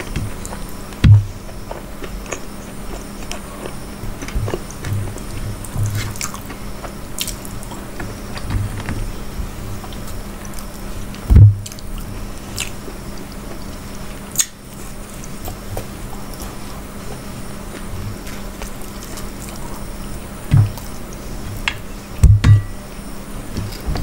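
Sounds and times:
chewing and wet mouth noises: 0.0s - 8.5s, 9.7s - 20.2s
loud low thump: 22.2s - 22.7s.

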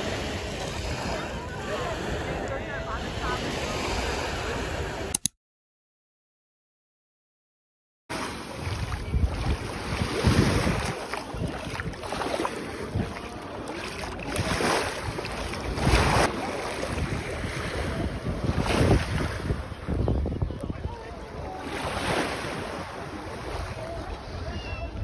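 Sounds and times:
sea waves washing ashore: 0.0s - 5.1s, 8.1s - 25.0s
wind rumbling on microphone: 8.4s - 25.0s.

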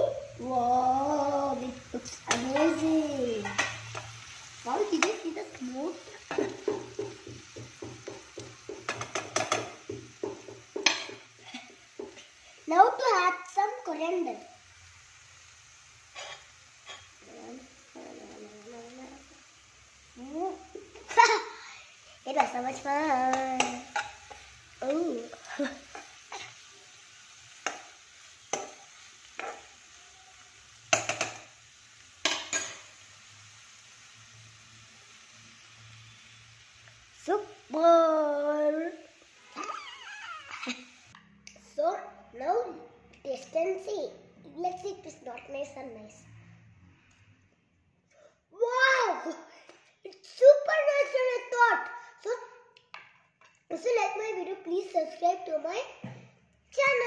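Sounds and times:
metal spoon stirring in a wok: 16.1s - 17.2s.

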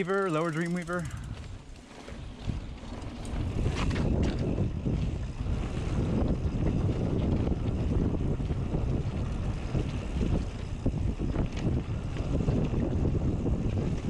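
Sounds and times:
mountain bike rattling on dirt trail: 0.0s - 14.0s
wind buffeting microphone: 0.0s - 14.0s.

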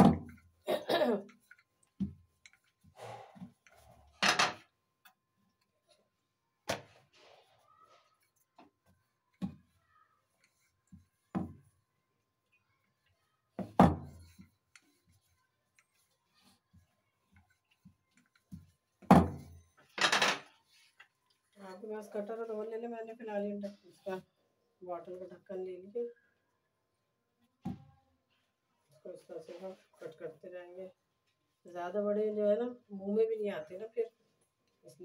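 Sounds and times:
rolling pin rolling dough: 13.5s - 19.8s.

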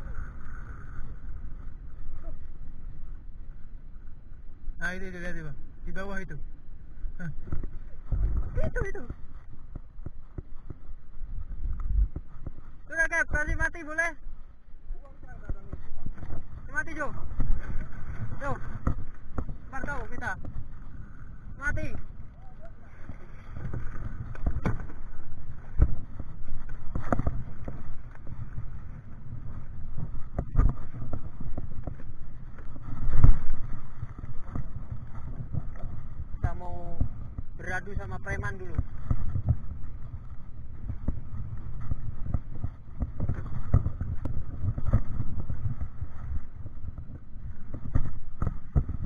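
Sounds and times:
low wind rumble on microphone: 0.0s - 49.0s.

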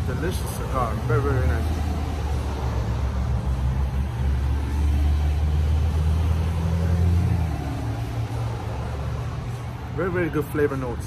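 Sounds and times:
road traffic engine drone: 0.0s - 11.0s
vehicle passing: 0.0s - 11.0s.

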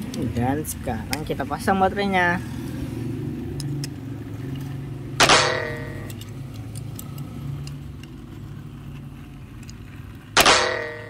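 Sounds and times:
low hum: 3.8s - 6.4s.

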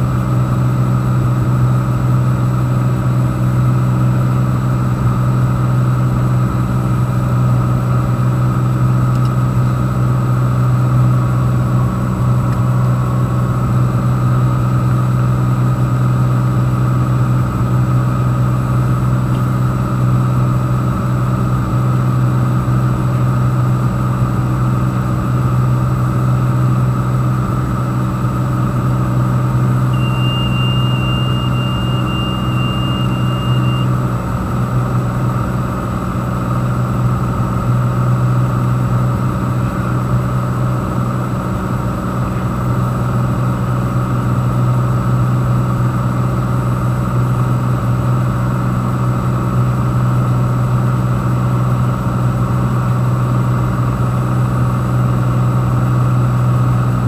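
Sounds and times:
propeller plane engine droning: 0.0s - 57.0s
high repeating beep: 29.9s - 33.9s.

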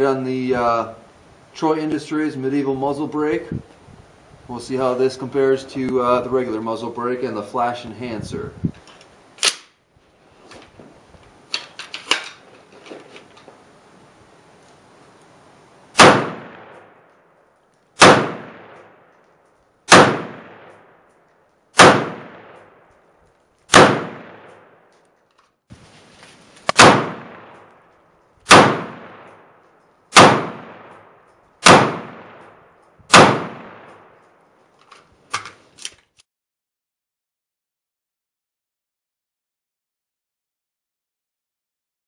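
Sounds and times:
rifle shots with echo: 16.0s - 17.2s, 18.0s - 19.2s, 19.9s - 21.0s, 21.8s - 22.9s, 23.7s - 24.9s, 26.7s - 27.7s, 28.5s - 34.2s.

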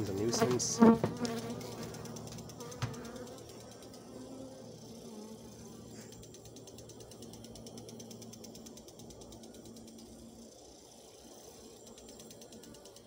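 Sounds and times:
bees buzzing: 0.0s - 8.4s.

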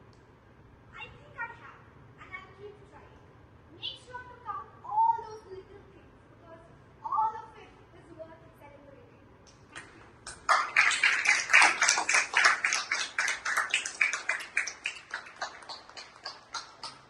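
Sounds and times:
small audience clapping: 9.7s - 17.0s.

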